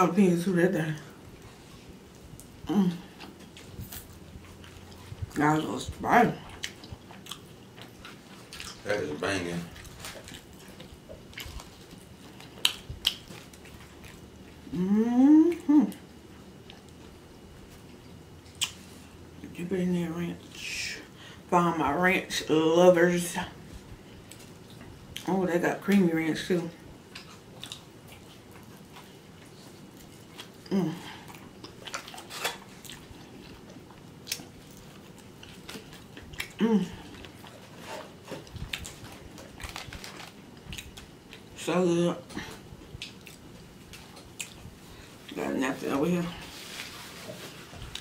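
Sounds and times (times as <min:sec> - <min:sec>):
closed-mouth chewing: 0:01.1 - 0:05.4, 0:06.4 - 0:09.0, 0:09.6 - 0:19.1, 0:26.9 - 0:41.6, 0:42.3 - 0:45.4, 0:46.4 - 0:48.0
person humming mmm: 0:14.6 - 0:16.0, 0:30.6 - 0:31.3, 0:36.5 - 0:37.1.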